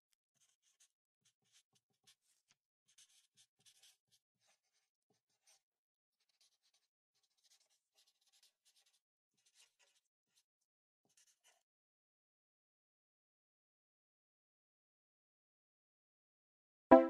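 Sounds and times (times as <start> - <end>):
marker rubbing on paper: 0.4 - 5.6, 6.2 - 10.5, 11.1 - 11.6
pen scratching on paper: 0.4 - 5.6, 6.2 - 10.5, 11.1 - 11.6.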